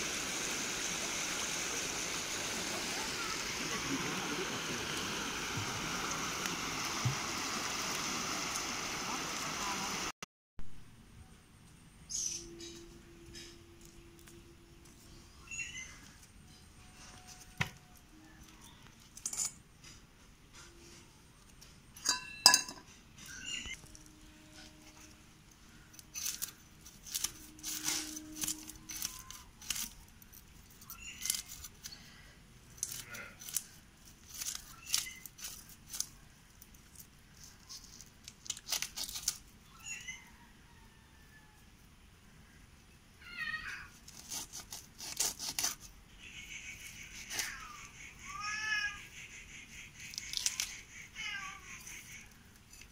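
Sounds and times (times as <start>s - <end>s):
fish scales being scraped: 44.0s - 45.9s.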